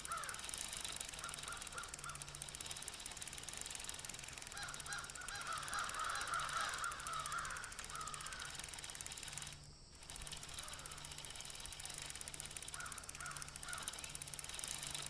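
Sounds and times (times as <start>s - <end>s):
birds calling: 0.0s - 2.8s, 4.1s - 14.6s.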